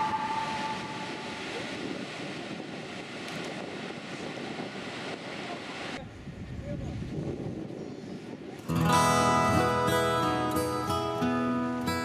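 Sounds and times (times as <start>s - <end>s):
waterfall rushing: 0.0s - 3.2s.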